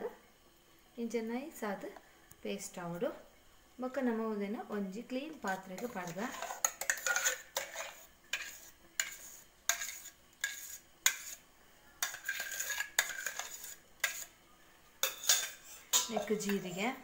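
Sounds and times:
spoon scraping metal jar: 5.5s - 11.4s, 12.0s - 14.3s, 15.0s - 16.8s.

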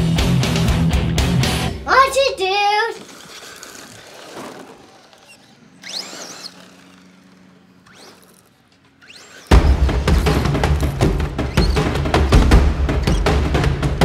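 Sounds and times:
loud music with heavy drums: 0.0s - 1.8s, 9.5s - 14.0s
rc truck motor whine: 0.0s - 14.0s.

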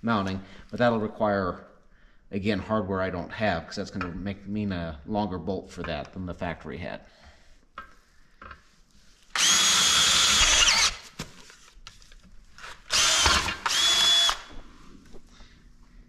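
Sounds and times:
drill whining through steel: 9.3s - 11.0s, 12.9s - 14.6s.

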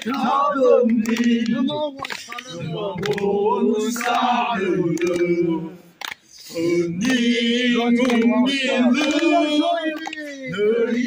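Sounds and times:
group of voices chanting: 0.0s - 5.9s, 6.5s - 11.0s
sharp hand claps: 0.9s - 3.4s, 4.0s - 4.3s, 4.9s - 5.4s, 6.0s - 6.4s, 7.0s - 8.4s, 9.0s - 10.4s.

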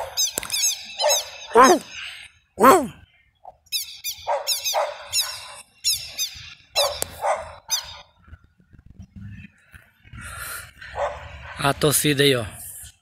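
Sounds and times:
dog barking: 0.0s - 0.2s, 1.0s - 1.9s, 4.2s - 5.6s, 6.8s - 8.0s, 10.9s - 11.7s.

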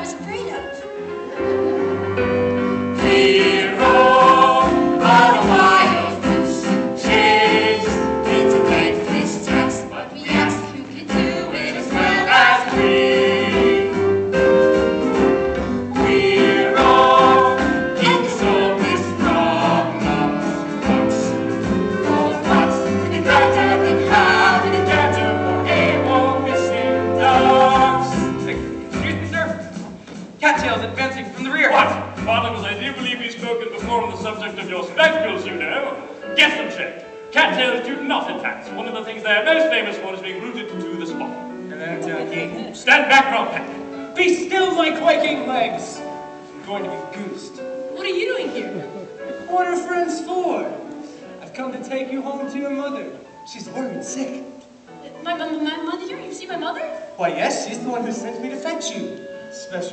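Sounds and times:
instrumental accompaniment with bass: 0.0s - 36.4s
group singing: 2.9s - 29.2s.

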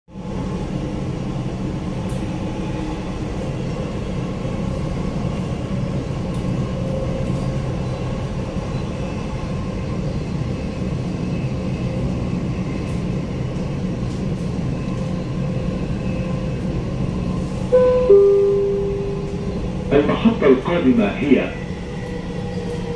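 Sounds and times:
train rumbling on track: 0.1s - 22.9s
faint whine: 17.7s - 20.9s.

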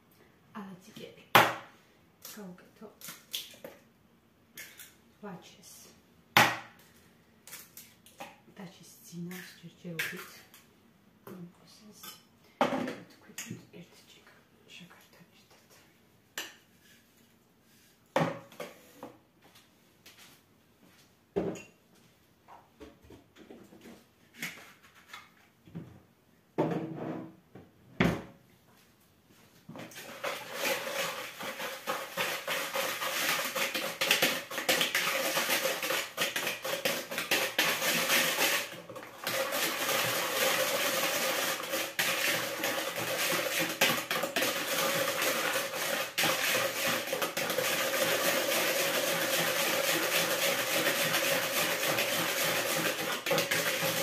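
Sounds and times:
wire whisk scraping plastic bowl: 29.9s - 54.0s.

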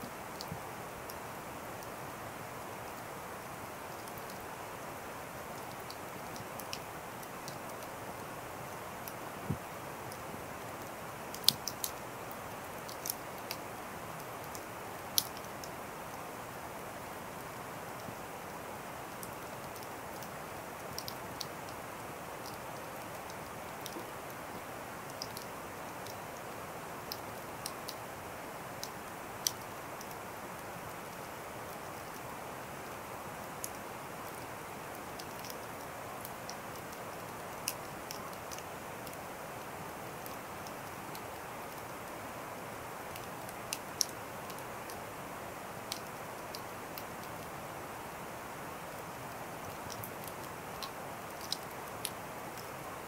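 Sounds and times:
fire crackles: 0.0s - 53.0s
fire crackles and pops: 5.6s - 16.3s.

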